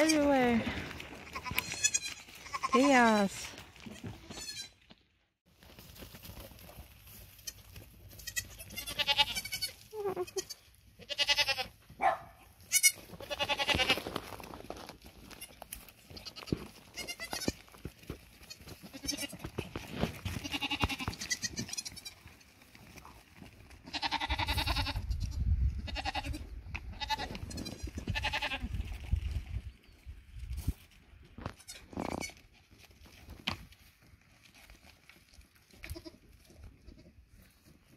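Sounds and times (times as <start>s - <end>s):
goats bleating: 0.0s - 3.1s, 4.2s - 4.8s, 7.4s - 11.8s, 12.7s - 14.0s, 16.2s - 17.6s, 18.4s - 19.5s, 20.3s - 22.2s, 23.8s - 25.1s, 25.9s - 28.6s.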